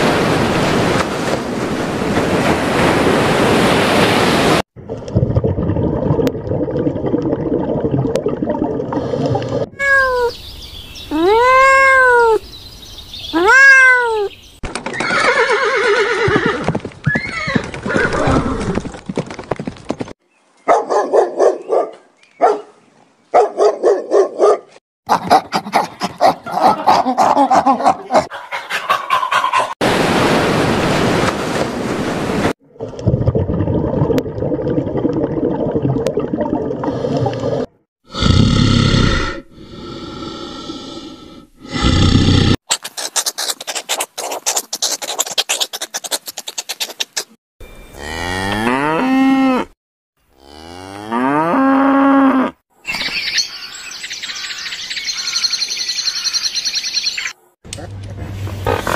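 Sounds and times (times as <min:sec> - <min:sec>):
cat meowing: 0:09.8 - 0:10.3, 0:11.1 - 0:12.4, 0:13.4 - 0:14.3.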